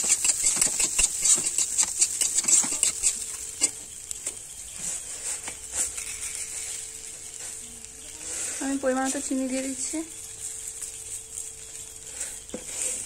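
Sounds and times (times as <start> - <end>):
metal spatula scraping metal pan: 0.0 - 3.8
frying sizzle: 0.0 - 13.0.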